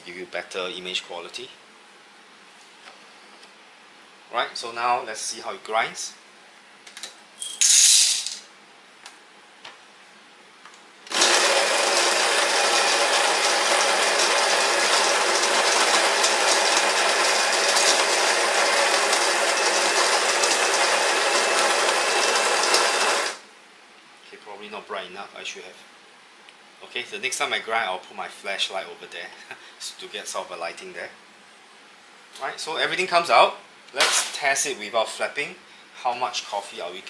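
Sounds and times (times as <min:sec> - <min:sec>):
coffee grinder grinding: 0:11.1 - 0:23.4.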